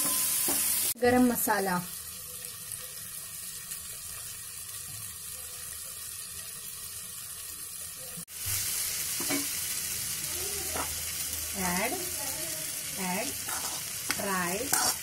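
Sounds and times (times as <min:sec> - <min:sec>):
vegetables sizzling in a wok: 0:00.0 - 0:15.0
spatula stirring in a wok: 0:10.7 - 0:15.0.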